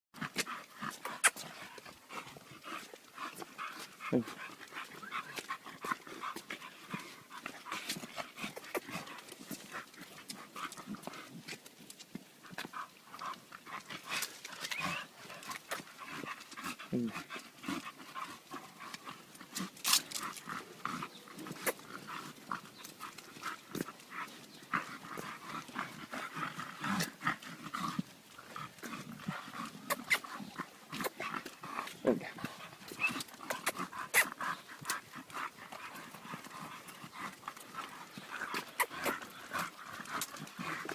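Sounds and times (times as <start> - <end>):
dogs breathing: 0.2 - 40.9.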